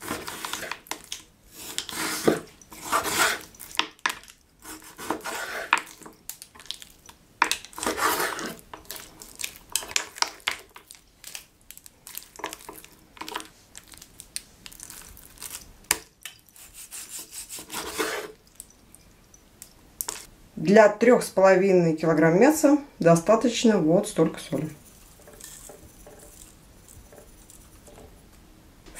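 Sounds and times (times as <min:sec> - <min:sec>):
meat scraping on wooden board: 0:00.0 - 0:06.8, 0:07.4 - 0:10.9, 0:16.5 - 0:18.4.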